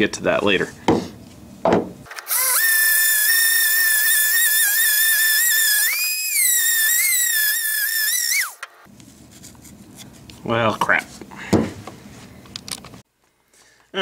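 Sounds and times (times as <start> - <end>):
rotary tool whining while sanding: 2.2 - 8.6.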